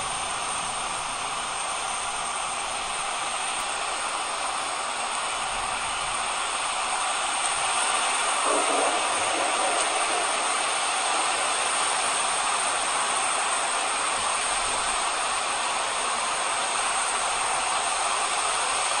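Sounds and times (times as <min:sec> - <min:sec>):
heavy rain hissing: 0:08.4 - 0:12.8.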